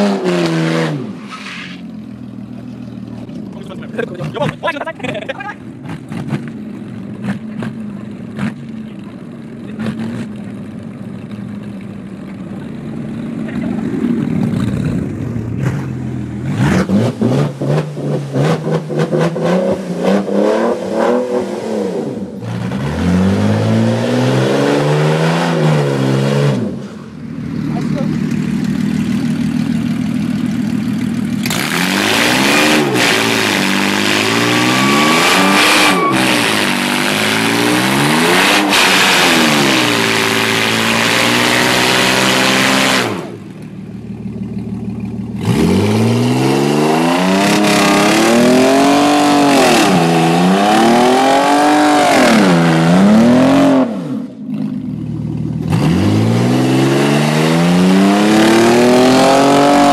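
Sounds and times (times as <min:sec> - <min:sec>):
car engine revving hard: 0:15.6 - 0:26.8, 0:31.4 - 0:43.4, 0:45.4 - 0:54.4, 0:55.6 - 0:59.9.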